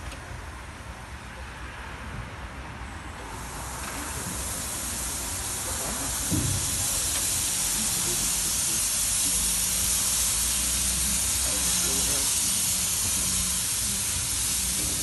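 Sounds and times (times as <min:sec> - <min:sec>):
steam hissing: 0:03.2 - 0:15.0
low thud: 0:06.3 - 0:06.8.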